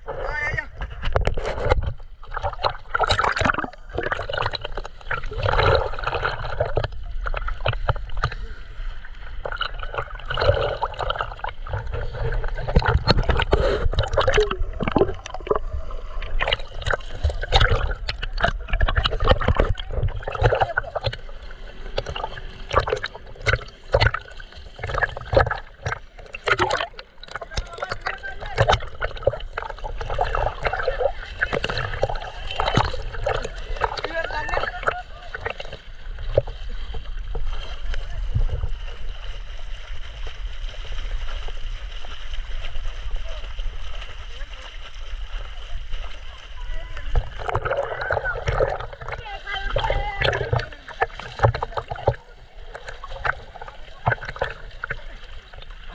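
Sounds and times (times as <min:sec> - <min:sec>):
low rumble of water: 0:00.0 - 0:55.9
water splashing: 0:00.0 - 0:55.9.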